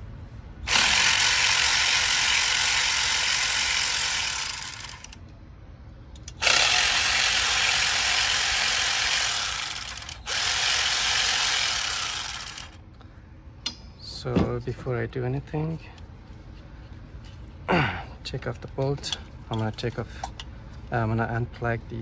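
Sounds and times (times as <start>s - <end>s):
ratchet wrench clicking: 0.7s - 5.2s, 6.2s - 12.8s.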